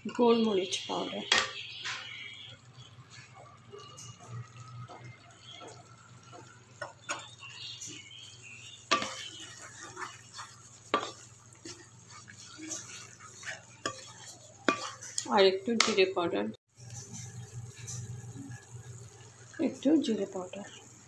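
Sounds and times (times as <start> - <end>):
sharp knocks against pan: 1.3 - 1.6
spatula scraping paste in wok: 8.6 - 16.0.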